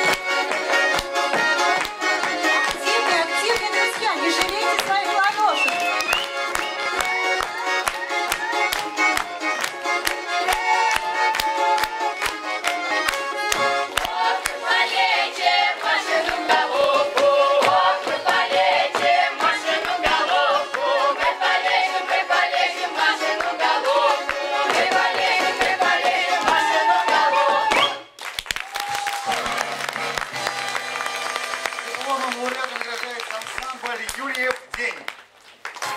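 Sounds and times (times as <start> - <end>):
feet stamping on wooden stage: 0.0 - 6.2, 13.4 - 14.1
button accordion: 0.0 - 27.6
choir singing folk song: 13.6 - 28.0.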